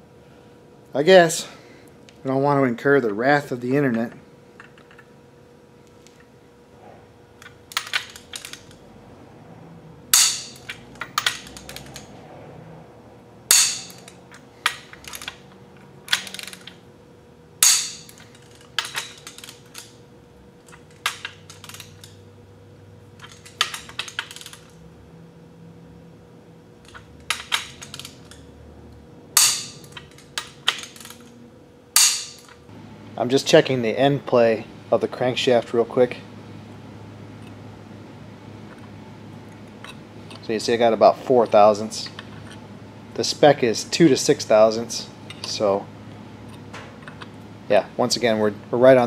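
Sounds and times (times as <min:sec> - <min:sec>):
ratchet clicks: 0:10.2 - 0:12.1, 0:16.1 - 0:16.8.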